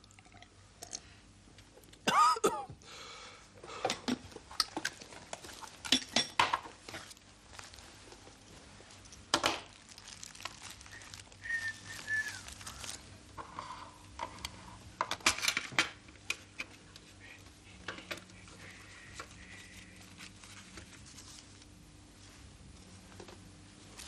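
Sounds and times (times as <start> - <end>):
paper crinkling and rustling: 4.8 - 13.1, 18.1 - 24.0
short whistle-like tones: 10.9 - 12.8.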